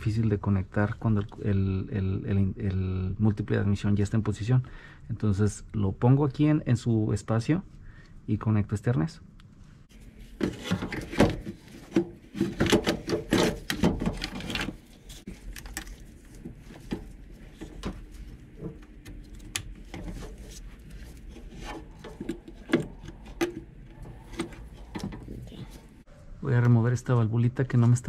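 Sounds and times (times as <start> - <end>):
plastic part scraping and knocking: 10.0 - 26.0.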